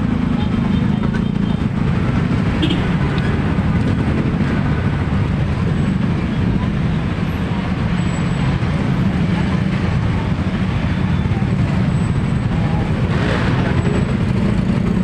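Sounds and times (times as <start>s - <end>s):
street traffic rumble: 0.0s - 15.0s
people talking: 6.2s - 8.1s, 8.7s - 11.9s.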